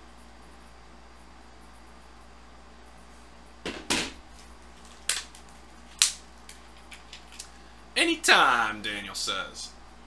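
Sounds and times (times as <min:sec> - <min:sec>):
faint room hum: 0:00.0 - 0:10.0.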